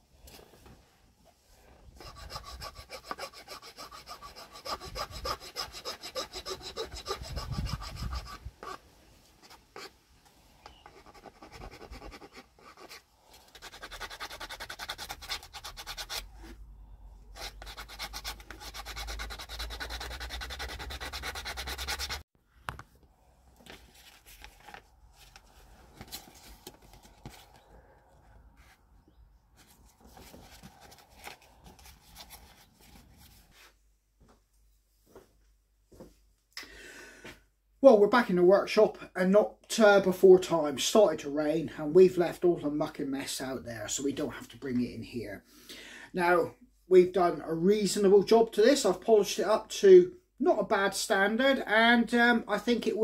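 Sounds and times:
hand file scraping wood: 2.0s - 8.8s, 9.4s - 10.0s, 10.6s - 16.6s, 17.3s - 22.2s.

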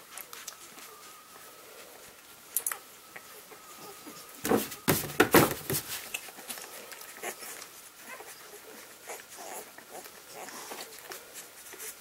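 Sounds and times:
puppies squeaking and nursing: 0.0s - 4.4s, 5.9s - 12.0s
rustling and bumps: 4.4s - 6.2s.

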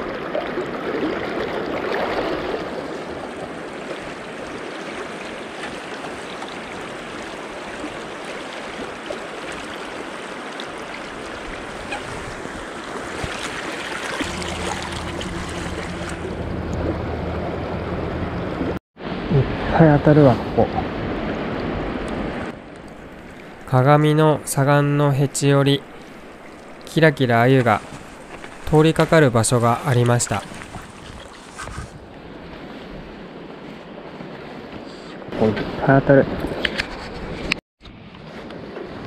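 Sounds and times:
river water rushing: 0.0s - 23.8s, 25.4s - 31.6s
low steady hum: 14.2s - 18.8s.

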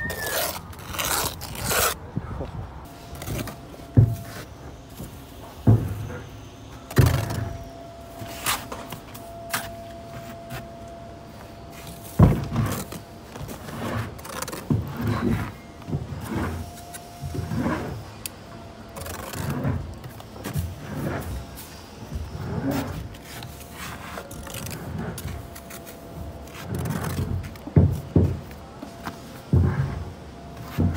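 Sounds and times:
trowel scraping mortar: 0.0s - 2.0s
faint steady hum: 0.0s - 30.9s.

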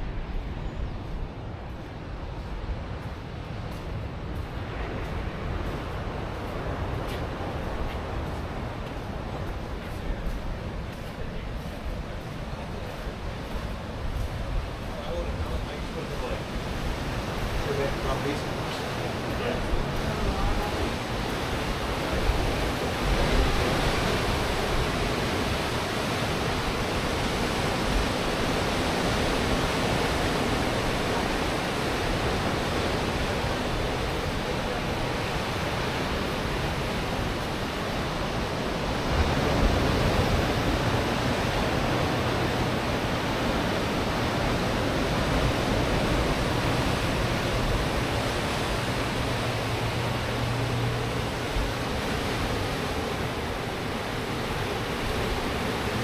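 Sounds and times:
surf washing onto shore: 1.7s - 56.0s
wave breaking: 12.5s - 56.0s.

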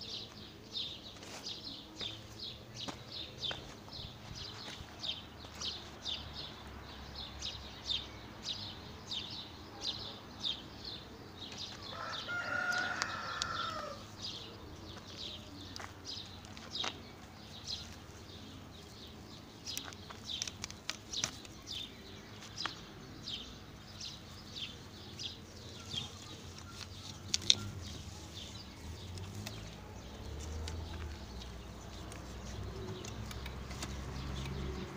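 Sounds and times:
rooster crowing: 11.9s - 14.0s.

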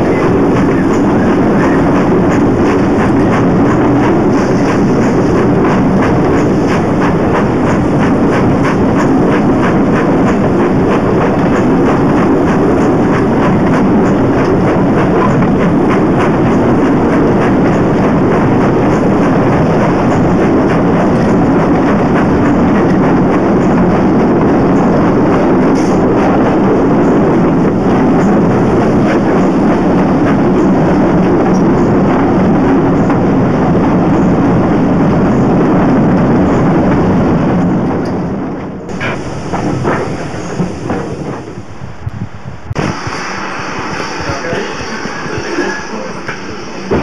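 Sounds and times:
train wheels rumbling on rail: 0.0s - 47.0s
air rushing past: 38.9s - 47.0s.

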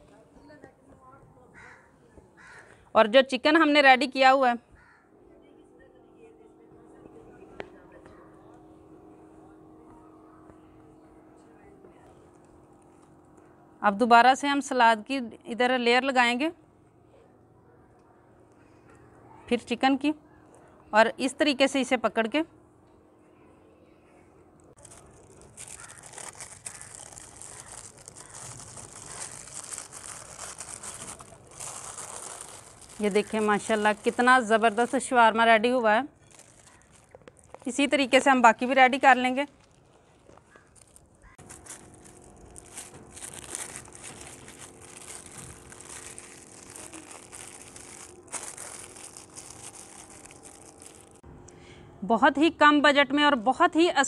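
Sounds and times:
wrapping paper crinkling: 24.8s - 35.4s, 36.2s - 51.2s.

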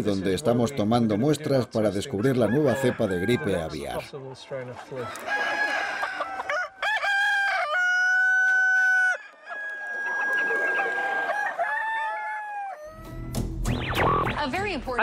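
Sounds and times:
roosters crowing: 2.0s - 4.0s, 4.8s - 13.3s
chickens clucking: 7.8s - 13.0s.

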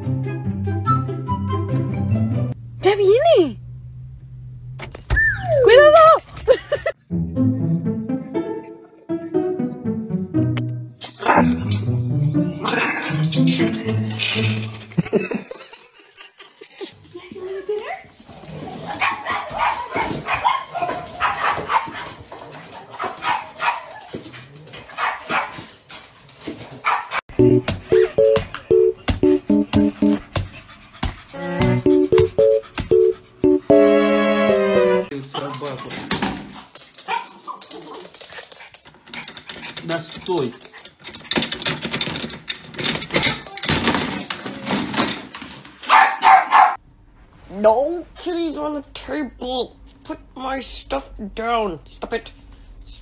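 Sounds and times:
dogs barking and yipping: 18.5s - 27.2s, 36.8s - 42.1s, 45.8s - 46.8s
pet carrier wire door rattling: 41.0s - 45.4s.

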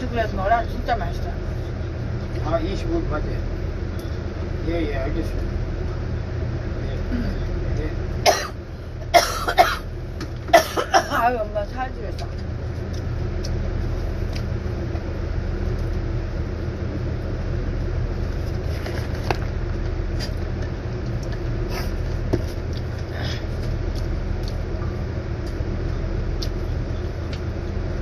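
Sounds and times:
machinery humming: 0.0s - 28.0s.

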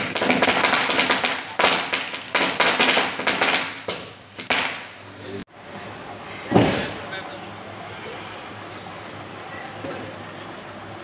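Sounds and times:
firecrackers banging: 0.0s - 5.1s, 6.2s - 7.2s.

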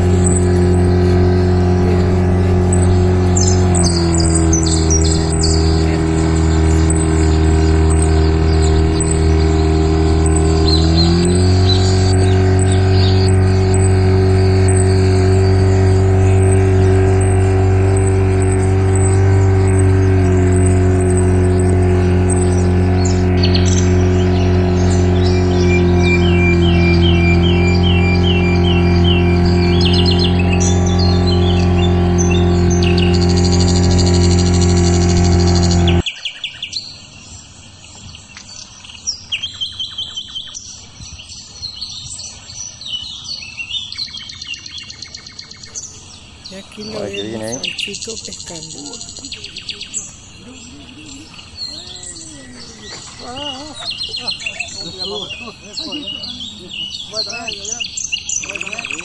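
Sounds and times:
high bird-like chirps: 0.0s - 34.8s, 37.8s - 59.0s
outboard motor running: 0.0s - 36.1s, 37.6s - 59.0s.

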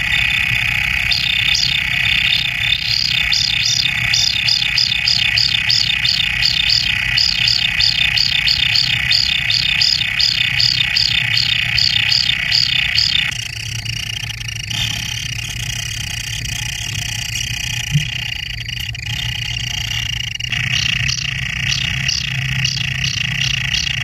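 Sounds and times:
chicks chirping rapidly: 0.0s - 13.3s, 20.4s - 24.0s
high buzzing churr: 0.0s - 24.0s.

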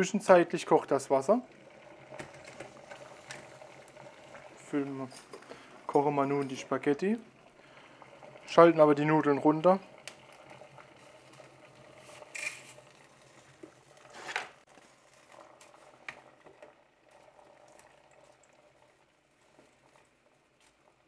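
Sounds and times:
water boiling in a pot: 0.0s - 21.0s.

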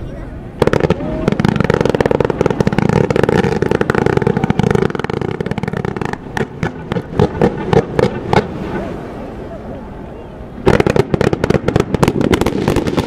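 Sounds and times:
fireworks loud pops: 0.6s - 8.6s, 10.7s - 13.0s
fireworks crackling: 0.6s - 8.8s, 10.6s - 13.0s.

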